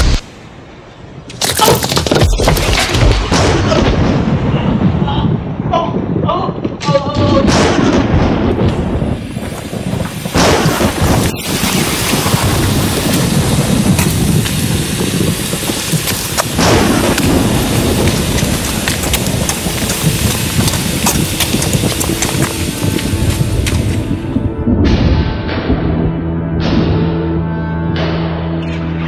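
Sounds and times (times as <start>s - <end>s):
thunderclaps: 1.5s - 27.1s
heavy rain downpour: 2.6s - 24.5s.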